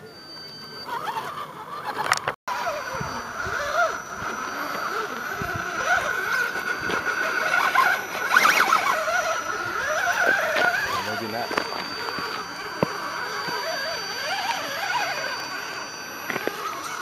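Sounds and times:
toy car motor whine: 0.0 - 17.0.

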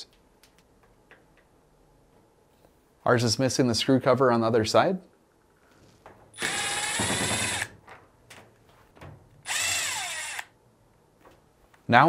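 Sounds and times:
power drill whirring: 6.4 - 7.8, 9.5 - 10.6.

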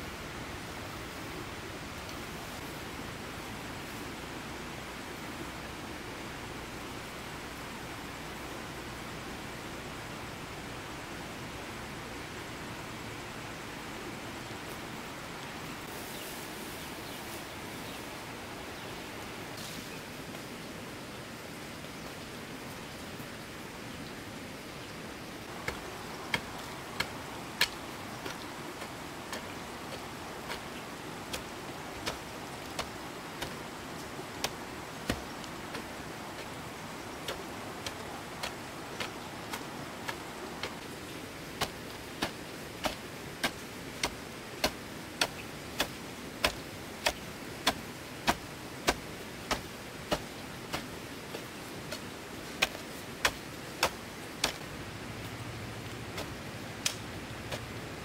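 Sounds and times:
steady background hiss: 0.0 - 58.0
sharp crisp clicks: 56.2 - 57.7.

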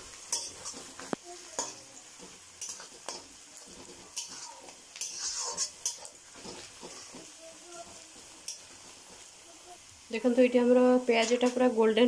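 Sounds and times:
onions sizzling in hot oil: 0.0 - 12.0
metal spatula scraping pan: 0.3 - 9.3.

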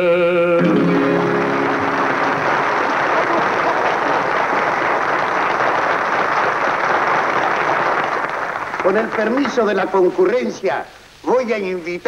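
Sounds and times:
large audience applauding: 0.6 - 10.1.

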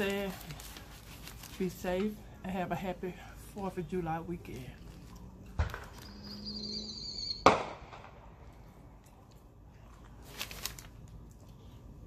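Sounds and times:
firework whistling and bang: 5.6 - 8.1.

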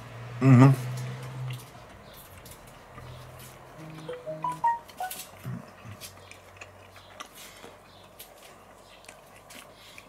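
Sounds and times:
man chewing: 0.8 - 10.0.

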